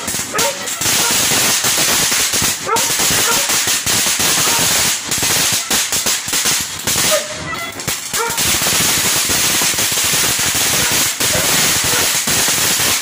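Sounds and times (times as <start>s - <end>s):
firework fountain hissing: 0.0s - 13.0s
rapid crackling of sparks: 0.0s - 13.0s.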